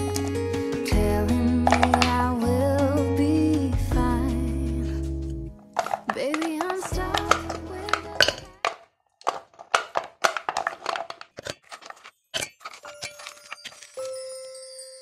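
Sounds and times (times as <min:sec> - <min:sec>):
wax pieces clinking in metal pot: 0:01.6 - 0:02.3, 0:05.7 - 0:14.4.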